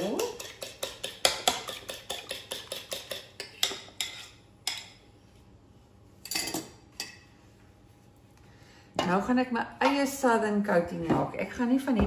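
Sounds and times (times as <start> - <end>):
fork tapping bowl: 0.0 - 4.9
fork beating eggs in dish: 0.0 - 5.0.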